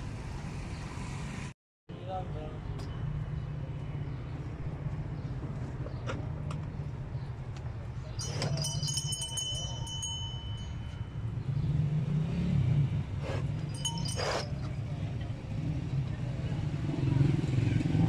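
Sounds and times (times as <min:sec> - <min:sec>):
cattle bells clinking: 0:08.2 - 0:11.4, 0:13.6 - 0:15.0.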